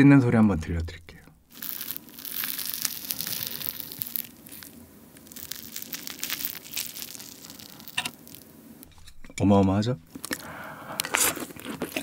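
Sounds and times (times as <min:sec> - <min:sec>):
crab stick tearing: 0:01.5 - 0:08.6, 0:10.1 - 0:12.0.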